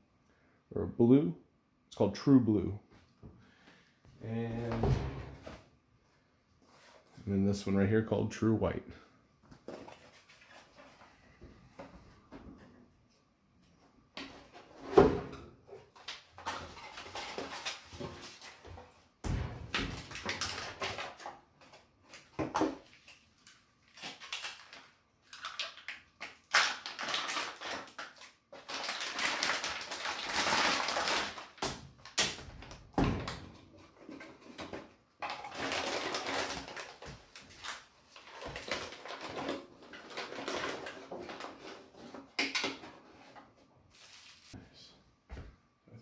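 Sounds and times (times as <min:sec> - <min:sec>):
packaging rustling: 0:20.0 - 0:32.8, 0:34.4 - 0:42.8, 0:43.9 - 0:44.6.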